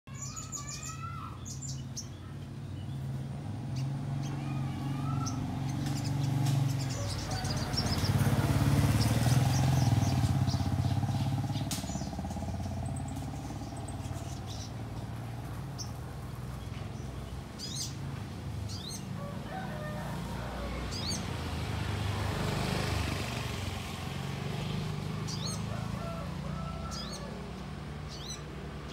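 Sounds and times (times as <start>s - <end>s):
bird sharp high chirps: 0.1s - 2.3s, 9.0s - 14.8s
low rumble of traffic: 0.1s - 28.9s.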